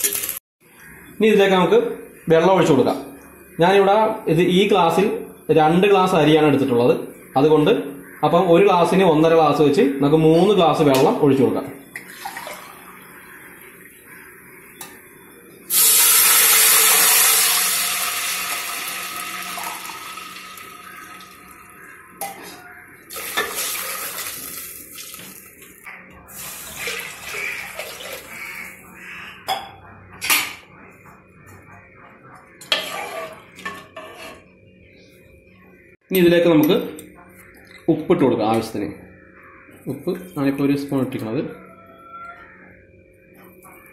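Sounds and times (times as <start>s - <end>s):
water poured into hot pot: 15.7s - 21.6s, 23.1s - 25.6s, 26.4s - 28.3s.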